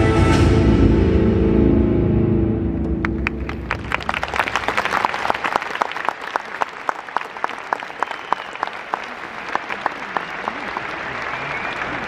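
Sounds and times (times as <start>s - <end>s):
crowd applauding: 2.9s - 12.0s
close person clapping: 3.0s - 12.0s.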